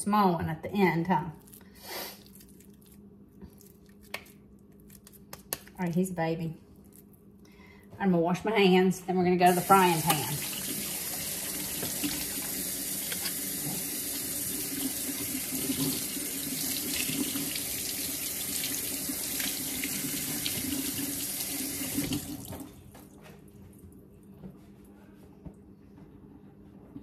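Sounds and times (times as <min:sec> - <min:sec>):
faucet running into a sink: 0:09.5 - 0:22.6.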